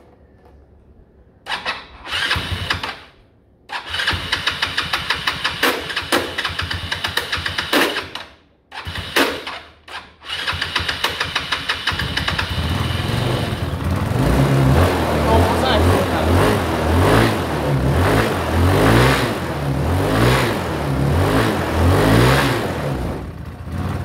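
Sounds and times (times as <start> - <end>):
electric starter cranking engine: 1.5 - 14.1.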